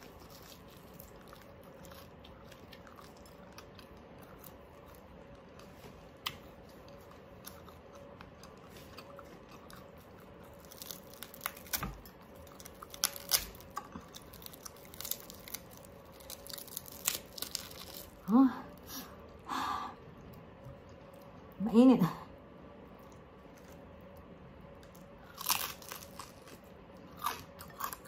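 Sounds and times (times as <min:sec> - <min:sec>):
crisp pork skin crackling: 0:00.0 - 0:05.6, 0:06.2 - 0:18.3, 0:24.8 - 0:28.0
chewing crispy pork: 0:00.0 - 0:19.4, 0:22.7 - 0:28.0.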